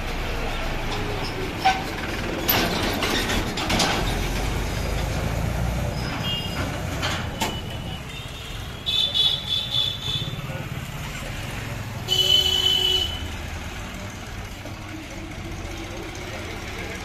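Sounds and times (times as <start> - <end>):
tractor diesel engine rumble: 0.0 - 17.0.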